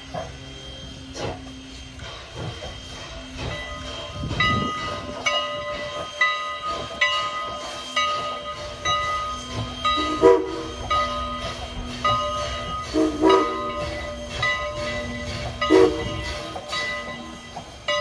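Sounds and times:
steam locomotive exhaust chuffing: 0.0 - 18.0
bell ringing: 1.7 - 18.0.

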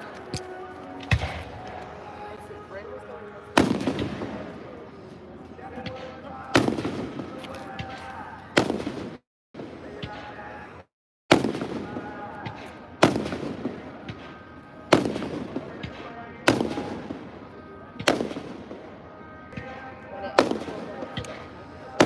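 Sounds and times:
fireworks booming: 3.6 - 4.6, 5.7 - 10.5, 11.3 - 19.8.

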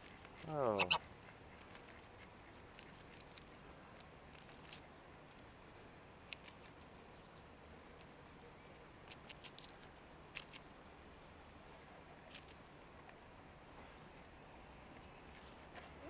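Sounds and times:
goose crunching lettuce: 0.0 - 8.1, 9.0 - 11.0, 12.2 - 12.6
low background hiss: 0.0 - 16.0.

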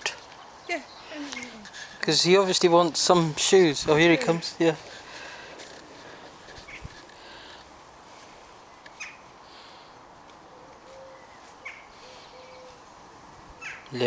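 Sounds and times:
faint bird chirps: 10.5 - 12.8.

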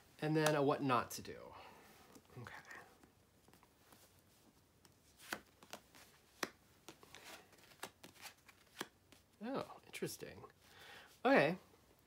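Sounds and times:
cards sliding: 4.8 - 9.3.

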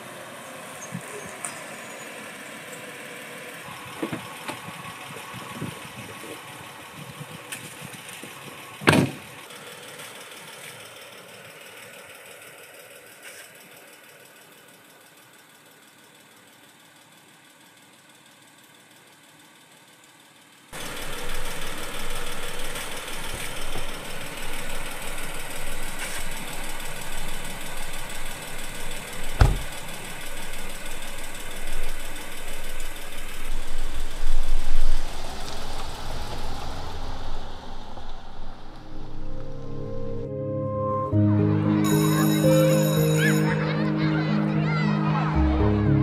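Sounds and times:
engine running unevenly: 0.0 - 15.7, 19.9 - 40.3
heavy thump: 29.4 - 29.9.

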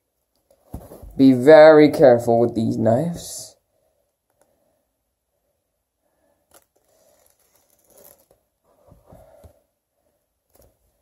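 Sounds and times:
plastic shrink wrap tearing: 6.5 - 8.4.

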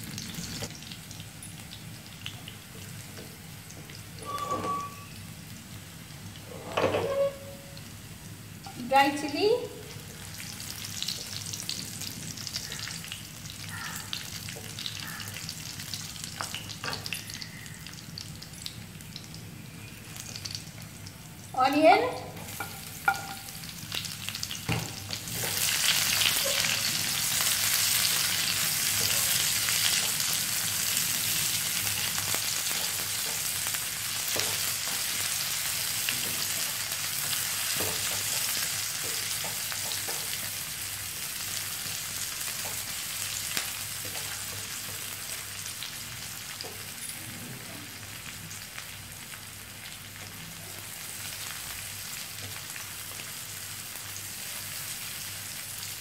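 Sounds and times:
onions sizzling in hot oil: 0.0 - 56.0.

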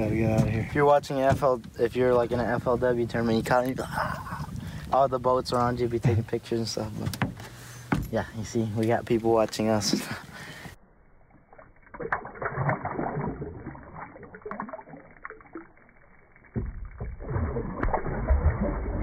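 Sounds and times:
muffled water splashing: 11.4 - 19.0.

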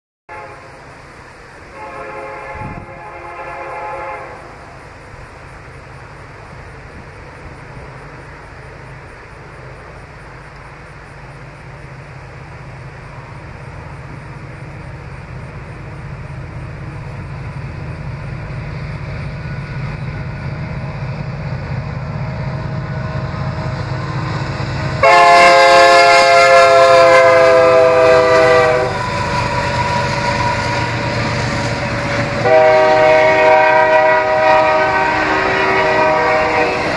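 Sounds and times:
train air horn blasts: 0.3 - 0.9, 1.7 - 4.8, 25.0 - 36.9
freight train rumble: 0.3 - 36.9.

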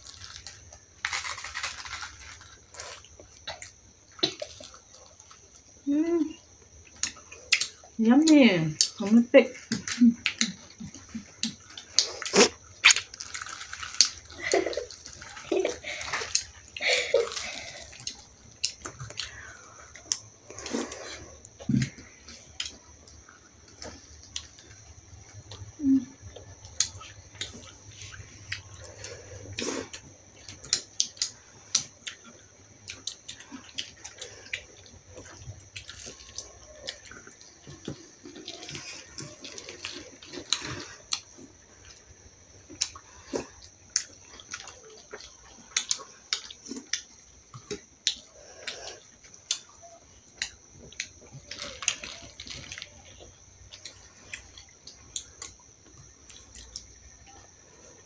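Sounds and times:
wet chewing and lip smacks: 26.3 - 57.6.

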